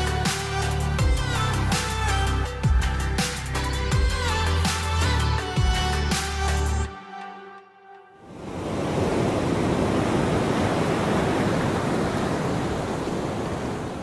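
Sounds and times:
ocean surf rushing: 0:08.2 - 0:14.0.

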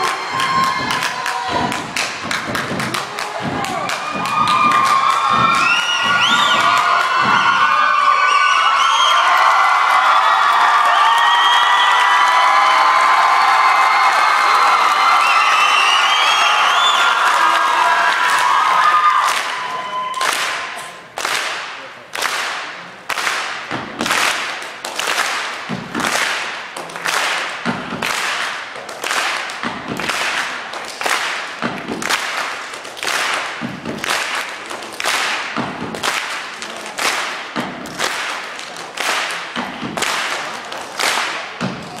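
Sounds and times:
sharp slap-like percussion hits: 0:00.0 - 0:07.7, 0:20.3 - 0:42.0
low thud: 0:00.4 - 0:07.6.

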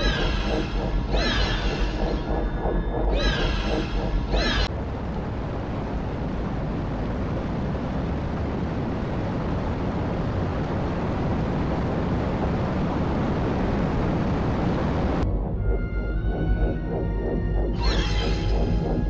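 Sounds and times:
churning water rushing: 0:04.2 - 0:15.2.

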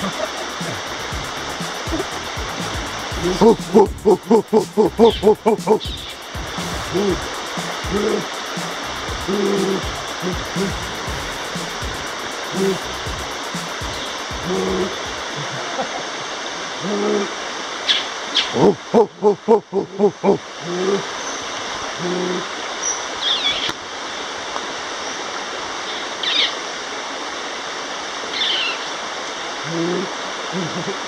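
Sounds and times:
short low calls: 0:00.0 - 0:15.4
river rushing: 0:00.0 - 0:19.0, 0:20.1 - 0:31.0.

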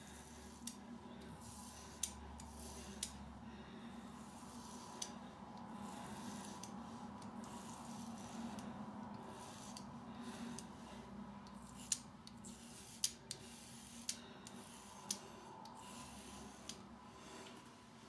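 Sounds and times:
razor scraping through lather: 0:04.2 - 0:05.2, 0:05.8 - 0:10.7, 0:11.5 - 0:16.8.

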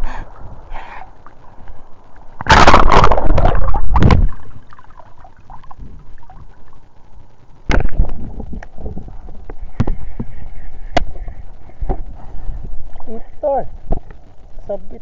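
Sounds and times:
sea water splashing: 0:01.5 - 0:06.8.

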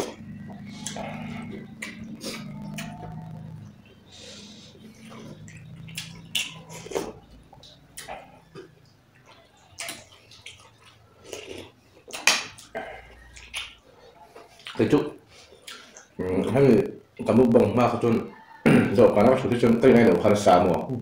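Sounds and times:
wet chewing and lip smacks: 0:00.0 - 0:03.8, 0:04.6 - 0:16.2.

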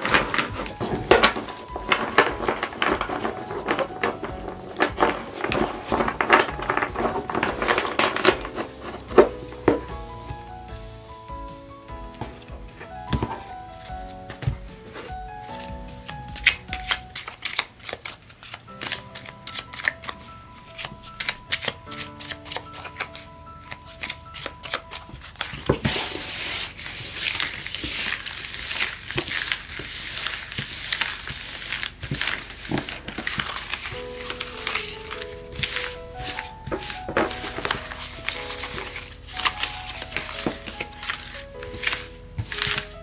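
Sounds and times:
cards being shuffled: 0:00.0 - 0:10.5, 0:12.1 - 0:43.0
soft background music: 0:00.0 - 0:43.0
cards swished across a table: 0:25.4 - 0:43.0.

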